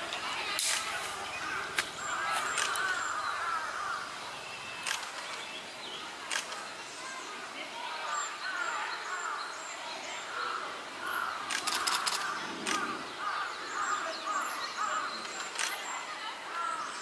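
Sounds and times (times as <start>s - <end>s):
bird calls: 0.0s - 7.4s, 8.0s - 17.0s
distant children calling and chattering: 0.0s - 17.0s
rapid clicks: 11.5s - 12.8s.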